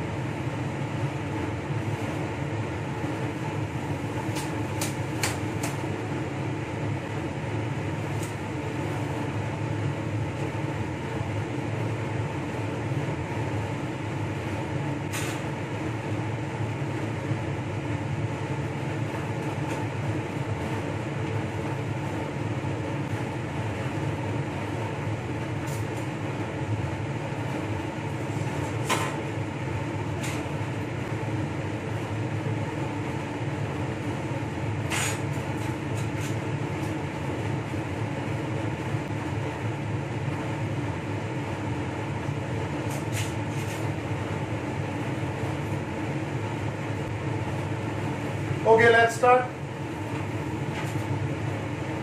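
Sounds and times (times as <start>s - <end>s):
air-handling blower hum: 0.0s - 52.0s.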